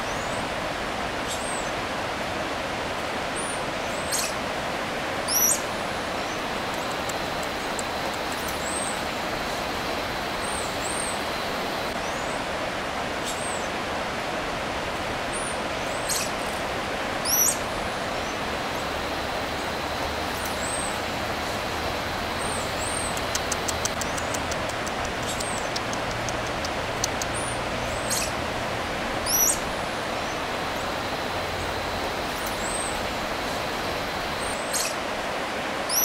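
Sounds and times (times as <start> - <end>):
steady rushing hiss: 5.6 - 12.0, 16.1 - 35.7
high ticks: 6.6 - 8.6, 22.8 - 27.5
high chirping calls: 22.3 - 28.4.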